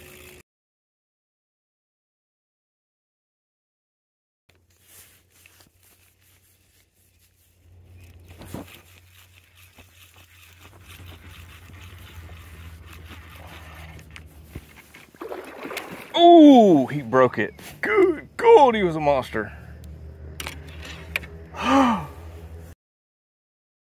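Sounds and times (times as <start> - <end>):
clothing rustling on microphone: 4.5 - 16.0.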